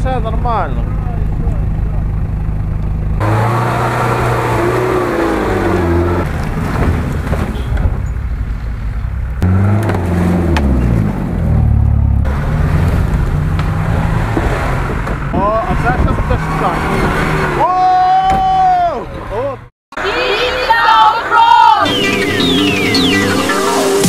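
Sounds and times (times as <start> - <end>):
engines revving under load: 0.5 - 8.1, 8.8 - 17.8.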